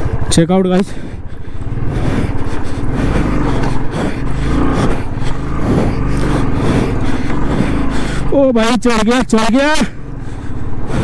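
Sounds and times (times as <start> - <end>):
motorcycle engine pulling under load: 1.6 - 8.4.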